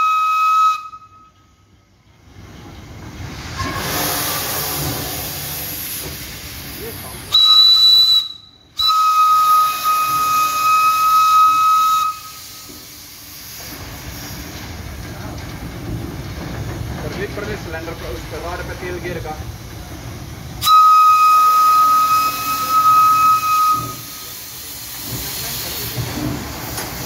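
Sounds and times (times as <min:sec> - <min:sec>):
steam whistle blasts: 0:00.0 - 0:01.4, 0:07.3 - 0:12.7, 0:20.6 - 0:24.5
locomotive running on track: 0:00.0 - 0:27.0
steam hissing: 0:02.3 - 0:27.0.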